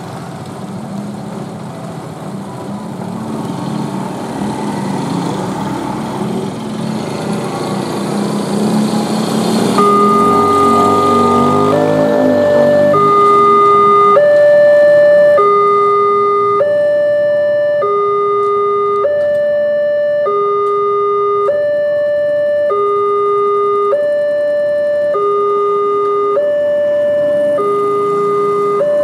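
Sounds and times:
two-tone level crossing alarm: 8.6s - 29.0s.

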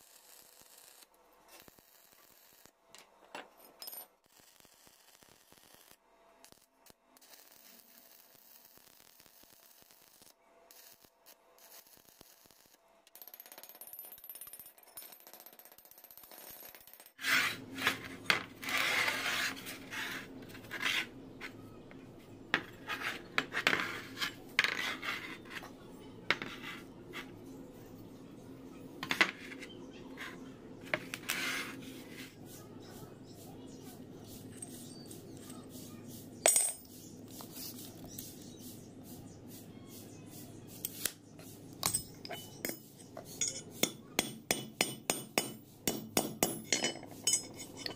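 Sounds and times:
steel latch parts clinking: 41.8s - 43.8s, 46.5s - 47.9s.

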